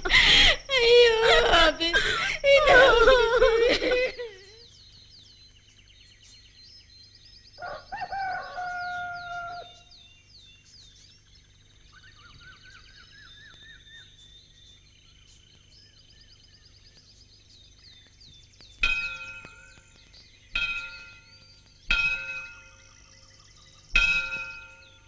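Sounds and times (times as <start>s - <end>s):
small birds chirping and trilling: 0.0s - 25.0s
rooster crowing: 7.6s - 9.9s.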